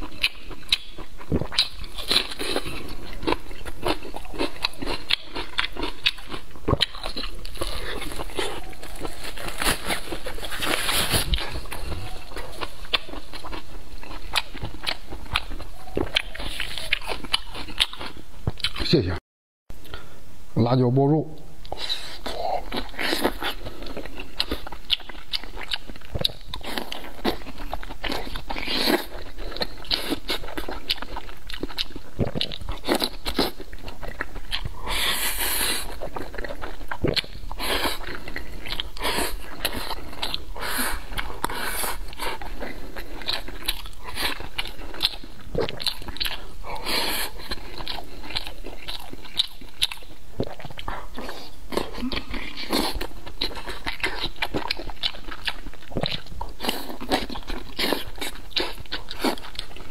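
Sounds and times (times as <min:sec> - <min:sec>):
chewing and wet smacks: 0:00.0 - 0:19.0, 0:21.6 - 0:59.9.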